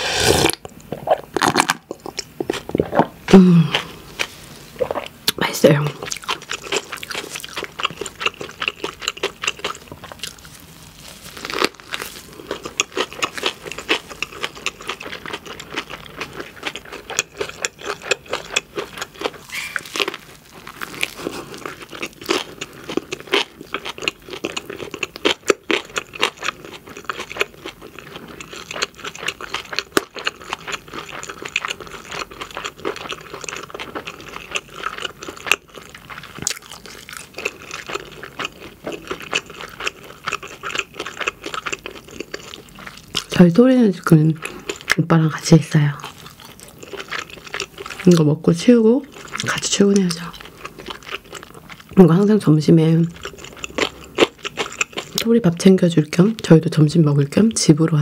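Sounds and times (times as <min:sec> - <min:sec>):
wet mouth sounds: 0:00.0 - 0:04.0, 0:04.8 - 0:05.4, 0:12.4 - 0:20.2
close chewing with crackles: 0:00.4 - 0:58.0.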